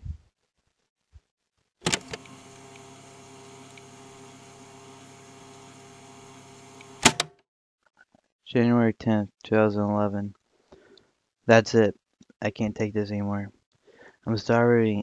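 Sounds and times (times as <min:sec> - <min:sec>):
sharp switch click: 0:07.0 - 0:07.4.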